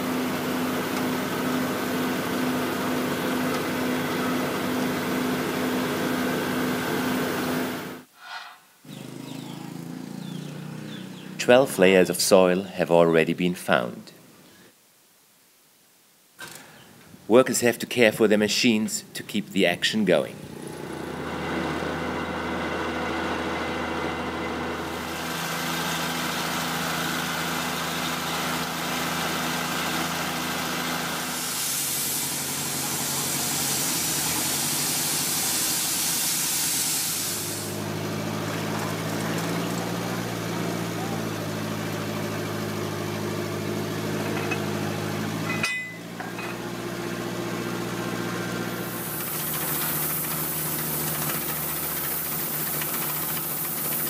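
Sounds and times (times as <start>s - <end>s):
air compressor running: 0.0s - 8.1s, 20.5s - 54.0s
drilling rig engines running: 20.5s - 54.0s
loud hiss of air and water: 29.3s - 37.9s, 48.7s - 54.0s.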